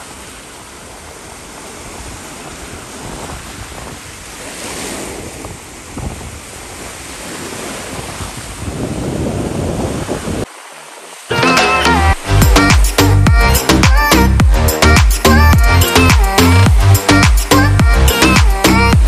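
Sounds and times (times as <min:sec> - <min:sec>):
sea waves breaking over rocks: 0:00.0 - 0:13.1.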